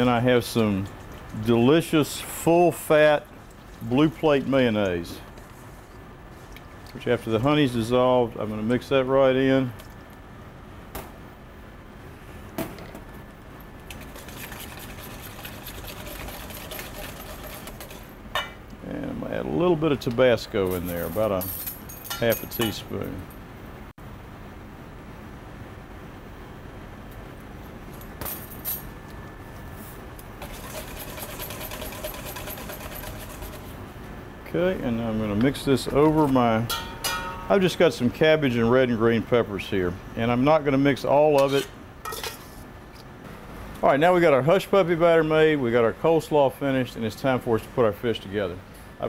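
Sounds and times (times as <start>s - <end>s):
kitchen hum: 0.0s - 23.4s, 26.9s - 49.0s
whisk beating in metal bowl: 13.9s - 18.1s, 30.4s - 33.8s.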